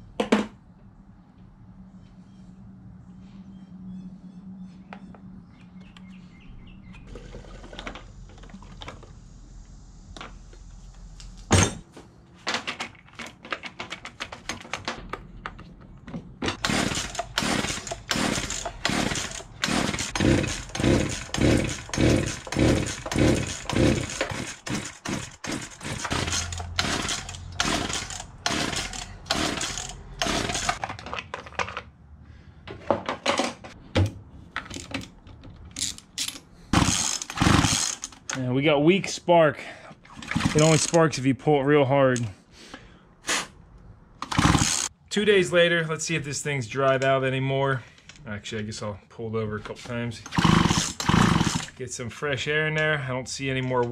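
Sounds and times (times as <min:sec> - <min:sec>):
starter rope yanks: 0:16.5 - 0:30.8, 0:35.8 - 0:38.4, 0:40.0 - 0:41.1, 0:44.2 - 0:44.9, 0:50.2 - 0:51.8
chainsaw cranking without starting: 0:16.6 - 0:31.0, 0:35.7 - 0:38.4, 0:40.1 - 0:41.2, 0:44.2 - 0:44.9, 0:50.2 - 0:51.8.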